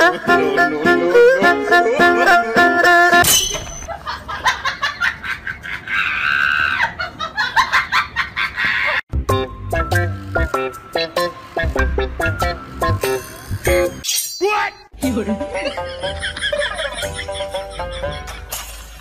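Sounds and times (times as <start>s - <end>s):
music with steady beat: 9.1s - 14.0s.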